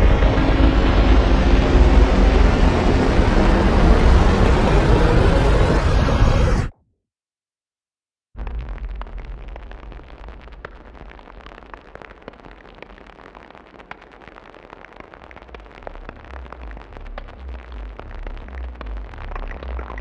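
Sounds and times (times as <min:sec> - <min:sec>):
deep pulsing bass: 0:00.0 - 0:06.7, 0:15.4 - 0:20.0
crackling noise texture: 0:00.0 - 0:06.8, 0:08.4 - 0:20.0
experimental electronic techno: 0:12.3 - 0:20.0.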